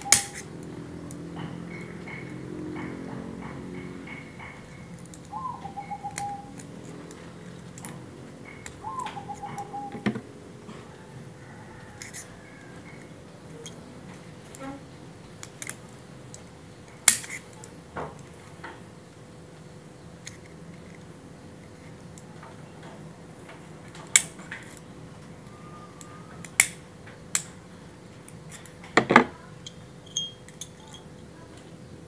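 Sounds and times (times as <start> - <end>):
metal tools clicking and tapping: 0.0 - 5.4, 6.1 - 11.0, 11.8 - 14.7, 15.3 - 18.8, 28.2 - 31.7
bird trilling call: 5.3 - 6.6, 8.4 - 10.2.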